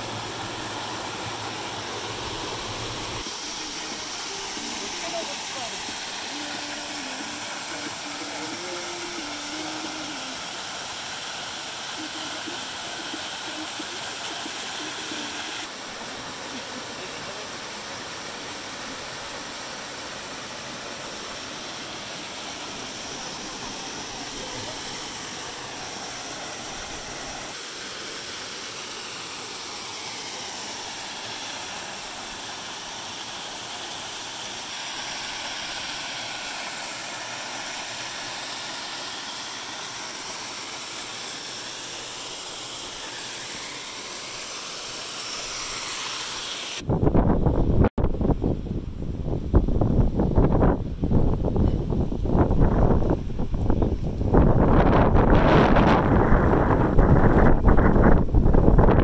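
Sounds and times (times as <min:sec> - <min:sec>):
waterfall rushing: 0:00.0 - 0:46.9
wind buffeting microphone: 0:46.9 - 0:59.0.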